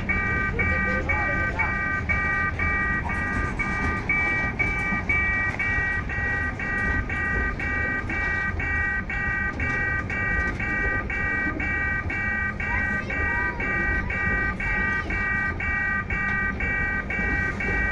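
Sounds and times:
electronic crossing bell: 0.0s - 17.9s
freight wagons rumbling and clattering: 0.0s - 17.9s.

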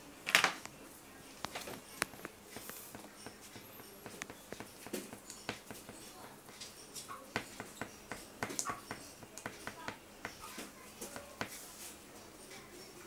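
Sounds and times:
crayon scribbling on paper: 2.0s - 6.7s, 7.4s - 11.9s.

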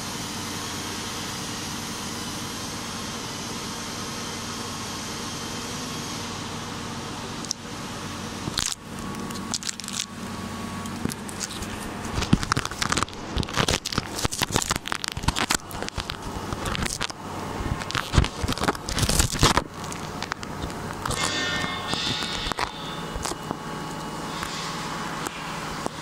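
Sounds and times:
low hum: 6.2s - 26.0s.

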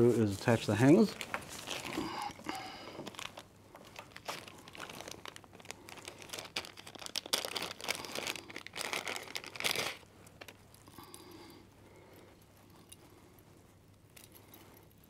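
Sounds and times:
plastic bag crinkling: 0.3s - 11.1s.

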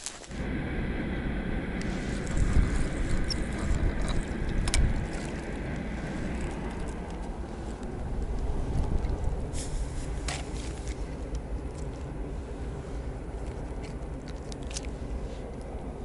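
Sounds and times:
wind buffeting microphone: 0.3s - 16.0s.

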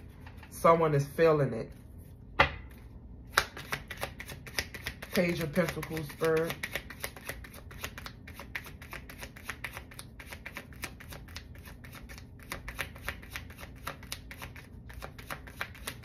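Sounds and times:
cards being shuffled: 3.3s - 16.0s.

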